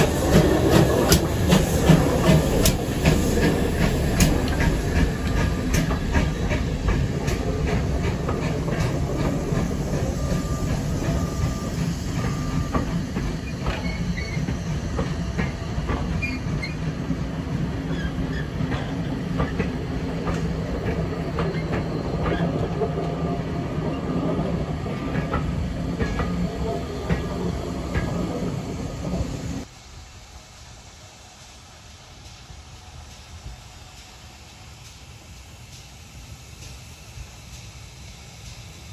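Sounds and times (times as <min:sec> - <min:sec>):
wheels clicking over rail joints: 0:00.0 - 0:29.7
train wheels rumbling on rails: 0:00.0 - 0:38.9
thin wheel squeal: 0:13.4 - 0:14.5.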